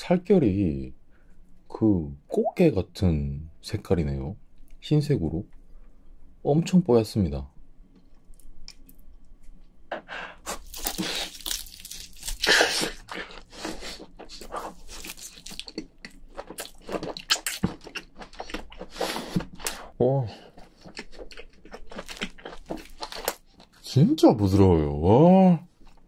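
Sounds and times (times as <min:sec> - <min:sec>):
person chewing wetly: 0:10.6 - 0:23.8.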